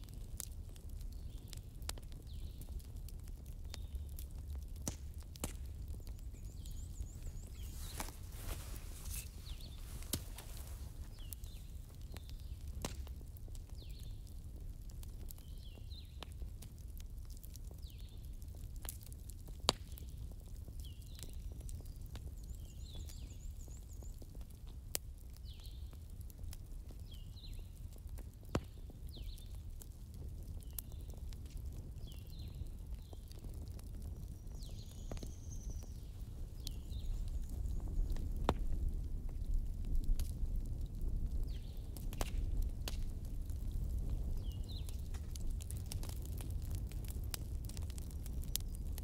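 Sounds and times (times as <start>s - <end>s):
campfire crackling and popping: 0.0s - 49.0s
small bird chirping: 5.9s - 12.5s.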